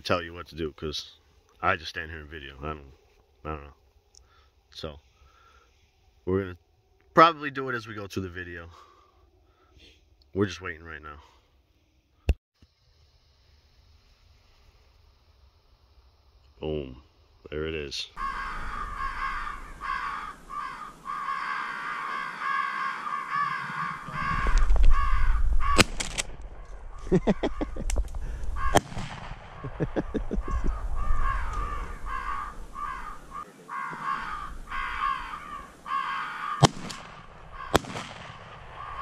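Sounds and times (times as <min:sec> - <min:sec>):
crows cawing: 0:18.2 - 0:26.0, 0:26.6 - 0:39.0
shotgun blasts: 0:25.7 - 0:26.5, 0:28.6 - 0:29.8, 0:36.6 - 0:39.0.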